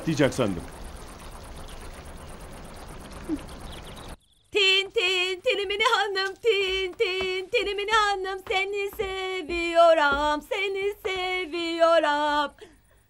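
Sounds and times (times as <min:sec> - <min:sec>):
background hiss: 0:00.0 - 0:13.0
woman singing in a high voice: 0:04.5 - 0:12.7.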